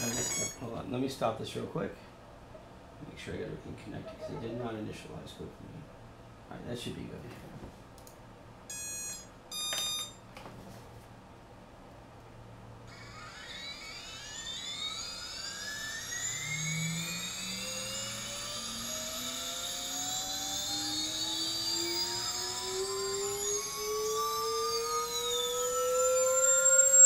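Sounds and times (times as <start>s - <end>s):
motor whine rising in pitch: 0.0s - 0.6s, 12.8s - 27.0s
thin high-pitched sweeping tones: 0.0s - 0.7s, 12.9s - 27.0s.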